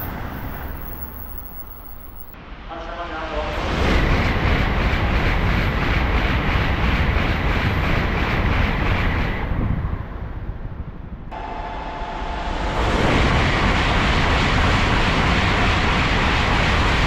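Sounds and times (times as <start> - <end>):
high whine: 0.0 - 2.4
train passing at high speed: 0.0 - 17.0.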